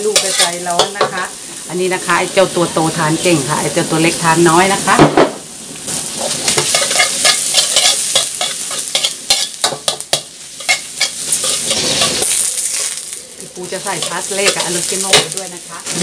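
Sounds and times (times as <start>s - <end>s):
metal spatula scraping pan: 0.0s - 1.1s, 6.1s - 13.0s
onions sizzling in butter: 0.0s - 16.0s.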